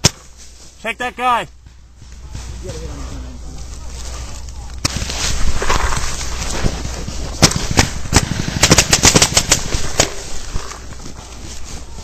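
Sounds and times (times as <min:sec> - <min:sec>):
paintball markers firing: 0:07.4 - 0:10.3.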